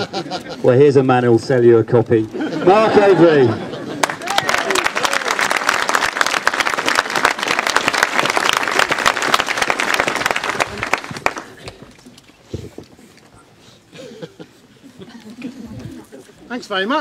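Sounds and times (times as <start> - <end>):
audience applauding: 3.9 - 11.8.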